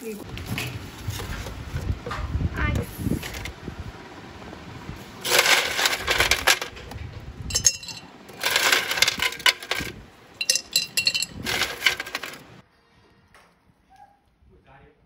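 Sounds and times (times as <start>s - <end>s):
dishes and utensils clinking: 7.5s - 12.4s.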